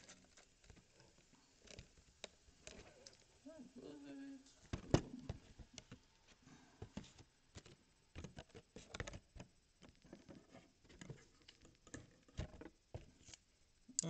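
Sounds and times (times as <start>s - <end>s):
cardboard boxes handled on a table: 6.8s - 13.3s.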